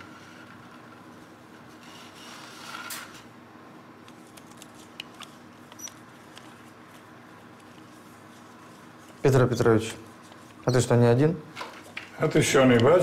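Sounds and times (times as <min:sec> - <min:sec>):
rustling scrape: 0:00.0 - 0:03.2.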